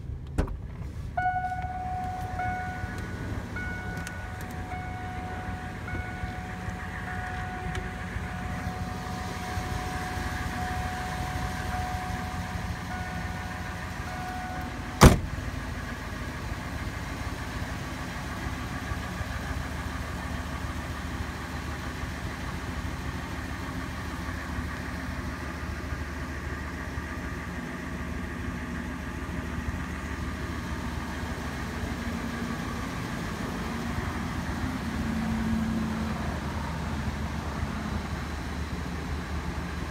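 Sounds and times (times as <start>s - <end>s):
engine idling: 0.0s - 39.9s
steady tone: 1.2s - 15.0s
door slamming shut: 15.0s - 15.4s.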